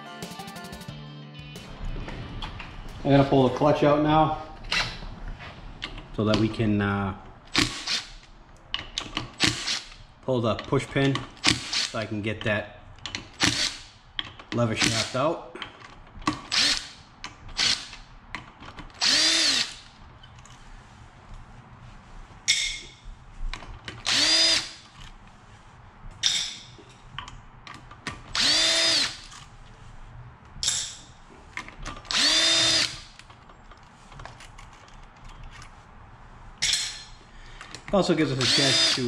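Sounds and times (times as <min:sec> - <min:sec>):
power drill running in bursts: 0:19.0 - 0:19.9, 0:24.1 - 0:24.8, 0:28.3 - 0:29.3, 0:32.1 - 0:33.1, 0:38.3 - 0:39.0.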